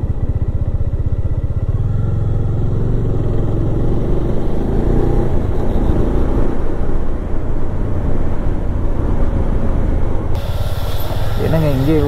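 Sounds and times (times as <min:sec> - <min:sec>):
motorcycle engine accelerating: 0:00.0 - 0:06.8.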